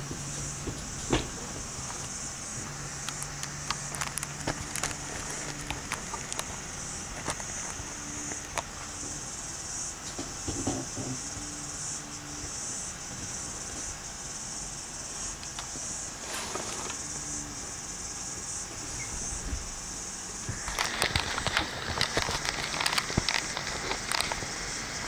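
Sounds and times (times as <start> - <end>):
knocks and rustles: 0.0 - 9.1, 10.0 - 11.3
insects chirring: 0.0 - 25.0.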